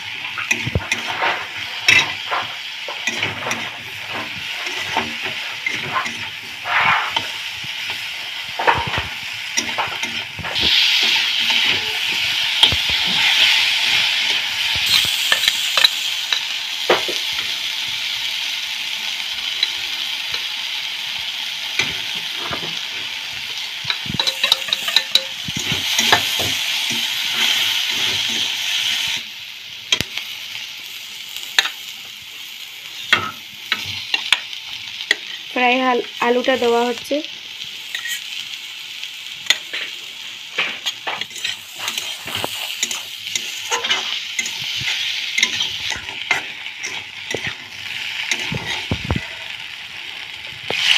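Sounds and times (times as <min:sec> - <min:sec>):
food sizzling in hot oil: 0:00.0 - 0:50.9
metal spatula scraping pan: 0:00.1 - 0:07.5, 0:23.9 - 0:28.6, 0:37.9 - 0:38.3, 0:40.6 - 0:49.6.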